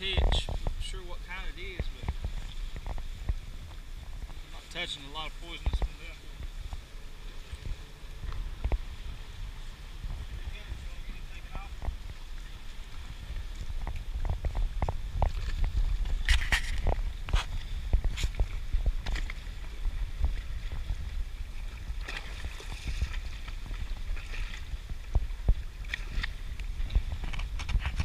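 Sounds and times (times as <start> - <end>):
water lapping against seawall: 0.0 - 28.0
water splashes: 0.0 - 28.0
wind rumbling on microphone: 0.0 - 28.0.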